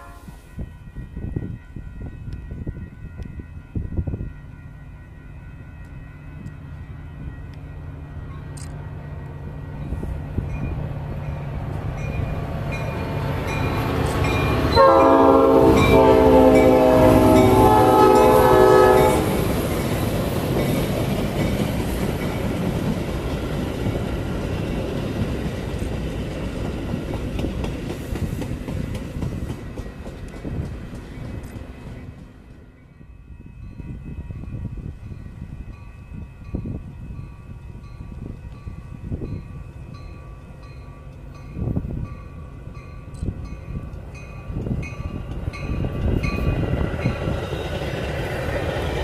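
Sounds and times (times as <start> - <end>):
train horn blast: 0.0 - 0.6, 14.4 - 19.5
train cars passing: 0.0 - 49.0.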